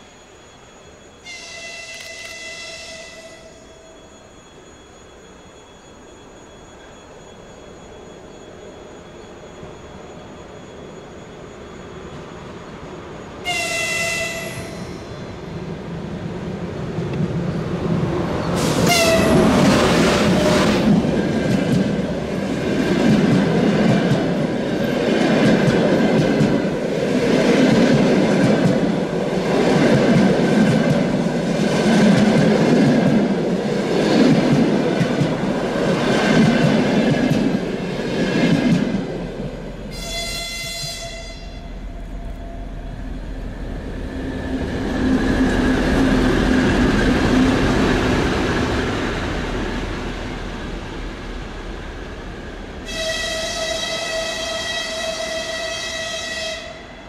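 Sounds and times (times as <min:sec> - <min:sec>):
locomotive horn: 0:01.2 - 0:03.8, 0:13.4 - 0:14.9, 0:18.6 - 0:19.7, 0:39.9 - 0:41.8, 0:52.8 - 0:57.0
train wheels clattering over rails: 0:18.3 - 0:39.6.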